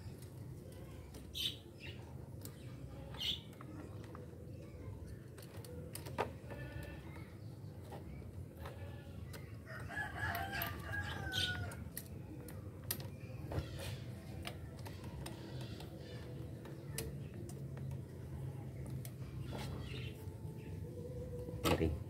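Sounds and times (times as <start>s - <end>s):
rooster crowing: 9.7s - 11.8s.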